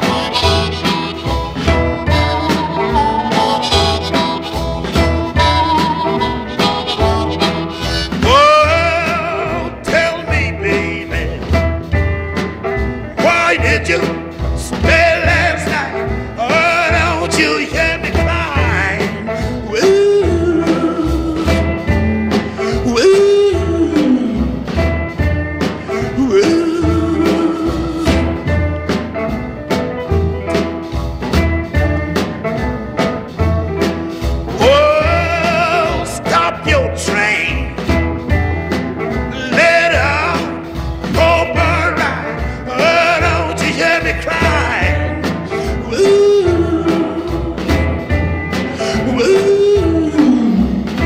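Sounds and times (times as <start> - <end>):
music with steady beat: 0.0 - 51.0
sliding held lead melody: 0.0 - 51.0.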